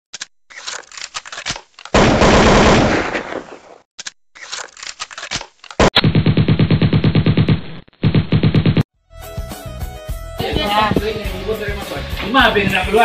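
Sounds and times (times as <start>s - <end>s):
sharp gunfire-like cracks: 1.5s - 3.8s.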